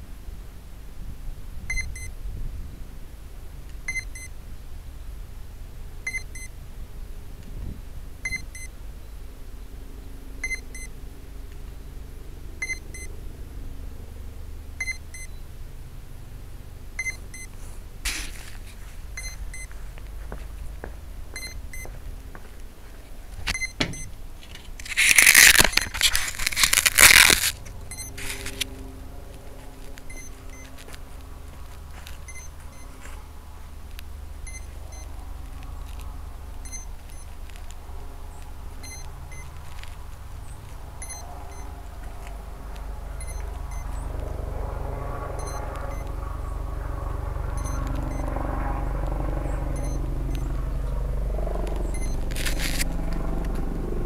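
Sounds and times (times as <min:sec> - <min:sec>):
low rumble: 0:14.7 - 0:54.0
short high electronic beeps: 0:30.1 - 0:30.7.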